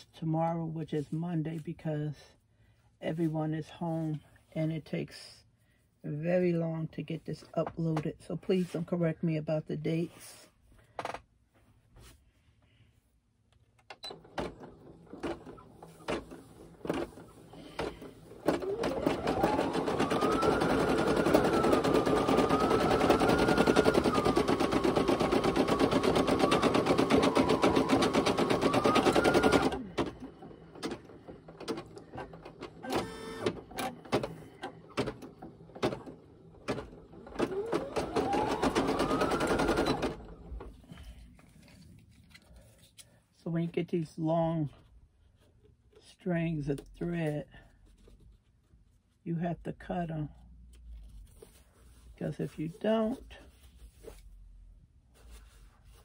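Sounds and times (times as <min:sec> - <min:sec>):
embroidery machine stitching: 0:13.9 - 0:40.8.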